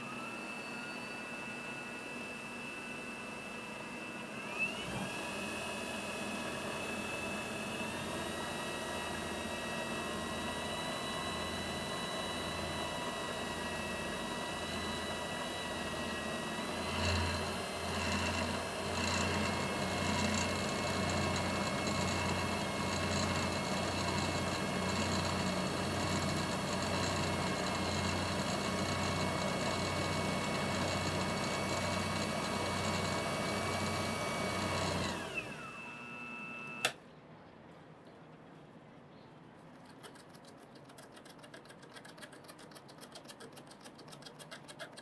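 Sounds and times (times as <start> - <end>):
wood lathe motor whine: 4.2 - 36.9.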